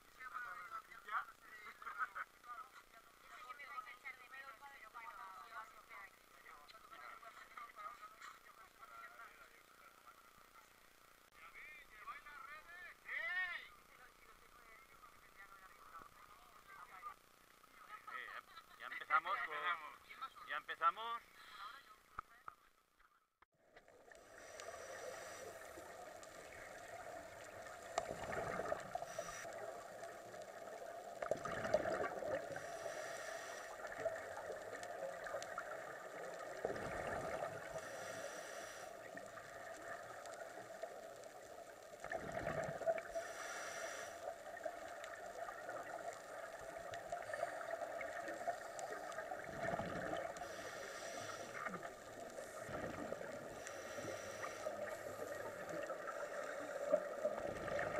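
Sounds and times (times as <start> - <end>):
underwater hiss: 24.0 - 57.9
regulator breathing: 24.2 - 26.4, 28.6 - 29.8, 32.5 - 34.0, 37.7 - 39.3, 43.0 - 44.5, 50.2 - 56.9
bubbles gurgling: 25.5 - 32.8, 33.7 - 38.1, 39.0 - 43.3, 44.2 - 57.9.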